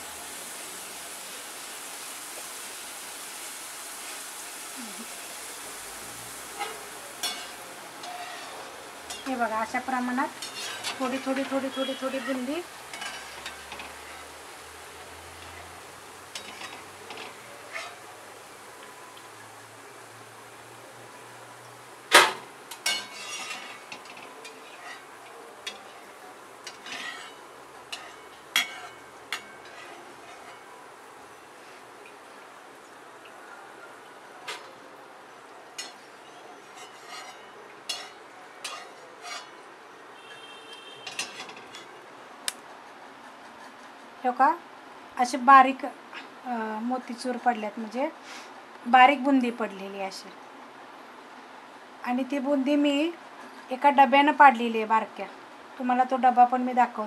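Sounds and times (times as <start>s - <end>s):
batter sizzling in hot oil: 0.0s - 33.3s, 35.4s - 42.6s.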